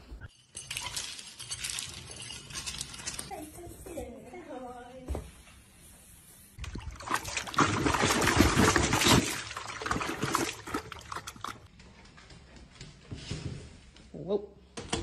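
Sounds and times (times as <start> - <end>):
water splashing in a bucket: 6.6 - 11.7.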